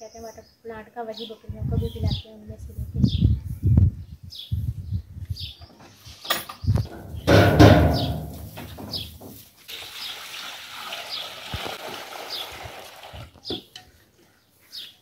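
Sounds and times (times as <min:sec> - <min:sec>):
bird chirping: 0:04.1 - 0:09.2, 0:13.4 - 0:15.0
water pouring into steel bowl: 0:09.6 - 0:13.3.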